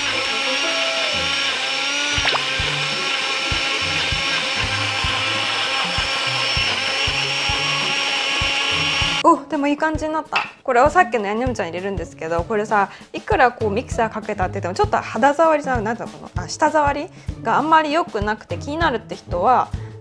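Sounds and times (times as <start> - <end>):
blender motor whining: 0.0 - 9.2.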